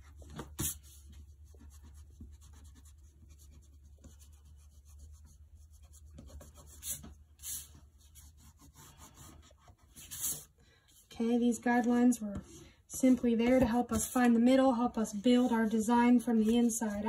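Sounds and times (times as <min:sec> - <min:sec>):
low steady hum: 0:00.0 - 0:17.0
eraser rubbing on paper: 0:00.6 - 0:10.5.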